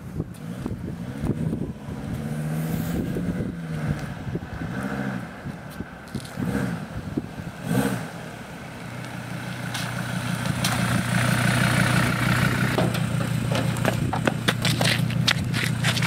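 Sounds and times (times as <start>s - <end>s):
van engine idling: 6.9s - 16.0s.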